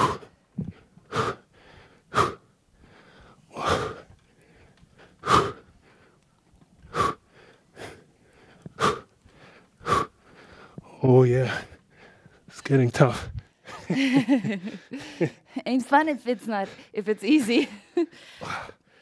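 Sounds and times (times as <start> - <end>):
man's forceful breaths out: 0.0 - 6.1, 18.2 - 19.0.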